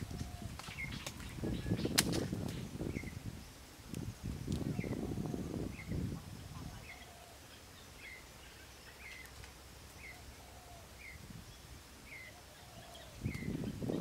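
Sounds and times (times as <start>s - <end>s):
bird chirping: 4.7s - 9.4s, 10.0s - 14.0s
lower bird call: 10.0s - 14.0s.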